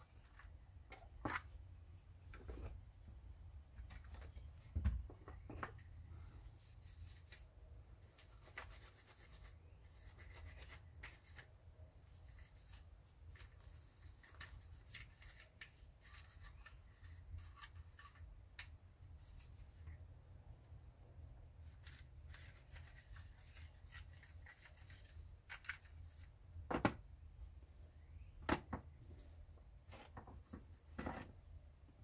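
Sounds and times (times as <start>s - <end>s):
hands rubbing and handling parts: 0.0s - 20.2s, 21.5s - 26.6s.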